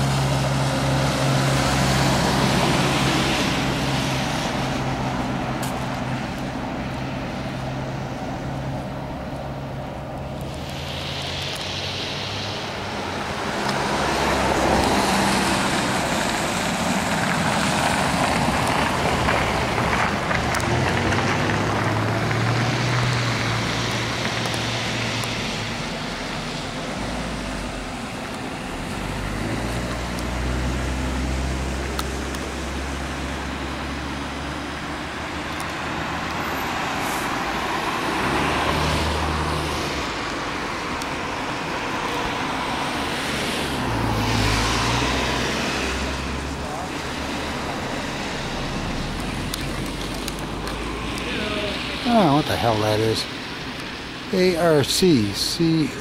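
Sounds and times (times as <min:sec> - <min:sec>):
cars passing on street: 0:00.0 - 0:56.0.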